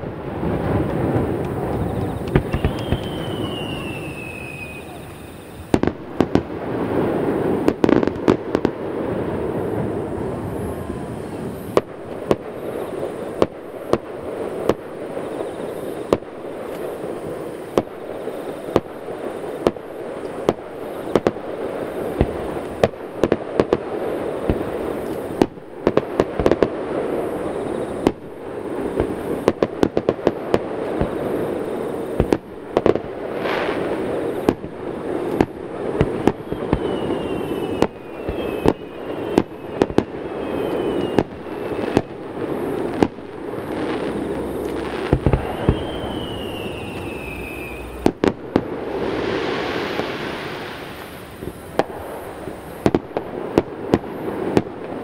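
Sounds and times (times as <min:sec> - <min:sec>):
firework whistles: 0:00.0 - 0:55.0
firework shells bursting: 0:00.6 - 0:06.6, 0:28.9 - 0:55.0.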